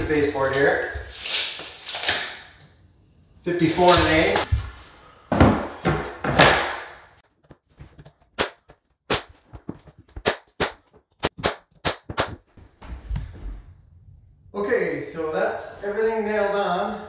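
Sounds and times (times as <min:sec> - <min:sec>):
nail gun firing: 0:10.2 - 0:12.4.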